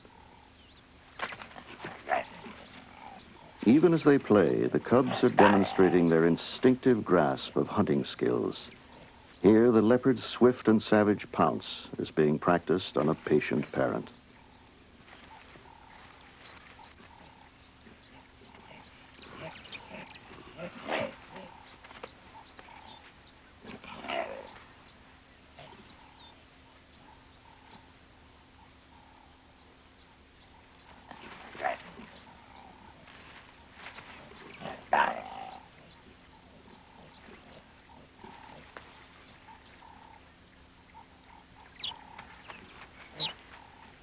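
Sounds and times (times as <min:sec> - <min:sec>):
leopard cubs giving short calls: 0:04.9 - 0:06.3, 0:40.9 - 0:43.9
leopard growling snarl: 0:34.4 - 0:38.8.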